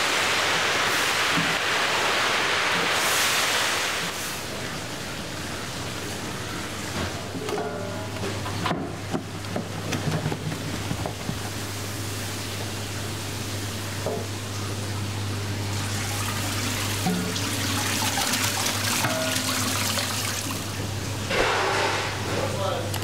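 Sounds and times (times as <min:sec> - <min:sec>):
tap water hissing into sink: 0:01.2 - 0:01.8, 0:13.9 - 0:21.6.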